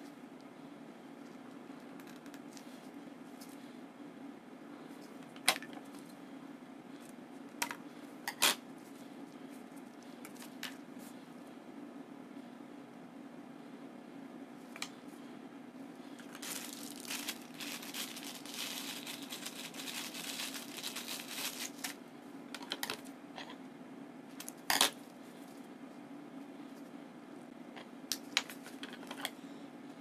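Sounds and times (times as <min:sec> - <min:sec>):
low room hum: 0:00.0 - 0:30.0
crinkly plastic and paper rustling: 0:16.2 - 0:22.0.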